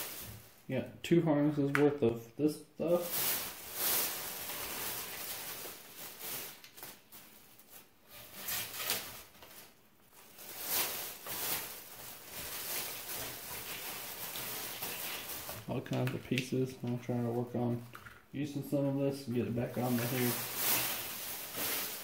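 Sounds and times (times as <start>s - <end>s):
wires and wrapping rustling: 0.0s - 0.8s, 2.8s - 22.0s.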